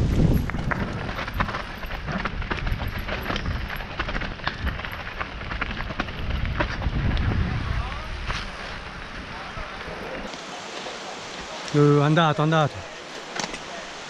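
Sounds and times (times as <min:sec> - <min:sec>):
bike rattling over stones: 0:00.0 - 0:10.3
wind buffeting microphone: 0:00.0 - 0:10.3.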